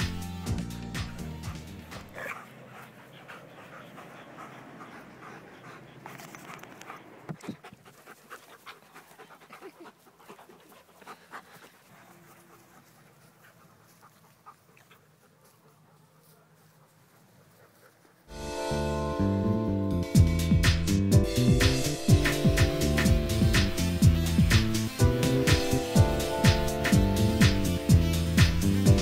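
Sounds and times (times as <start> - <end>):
dogs panting: 0.0 - 18.3, 19.2 - 29.0
scuffling noises: 0.6 - 18.3.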